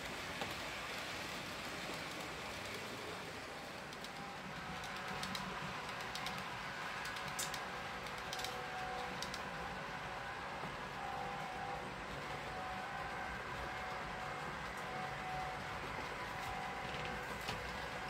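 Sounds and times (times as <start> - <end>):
wheels clicking over rail joints: 0.0 - 9.7.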